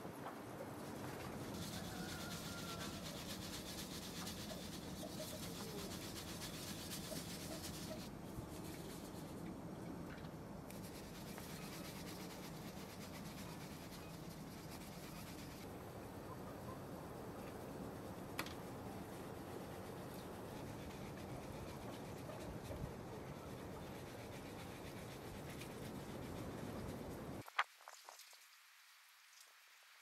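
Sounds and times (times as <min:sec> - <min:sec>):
flour sifted through metal sieve: 0:00.9 - 0:09.4, 0:10.7 - 0:15.7
hands rubbing: 0:01.4 - 0:09.4, 0:10.7 - 0:15.7.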